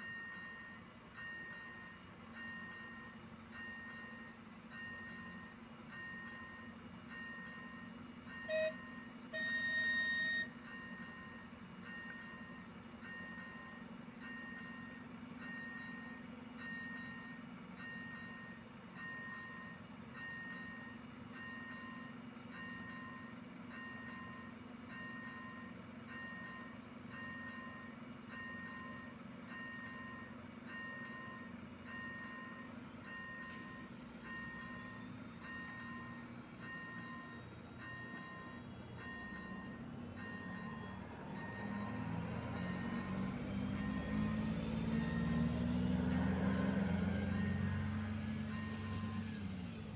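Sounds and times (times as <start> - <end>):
level crossing electronic warning tone: 0.0 - 49.8
train horn blasts: 8.4 - 10.6.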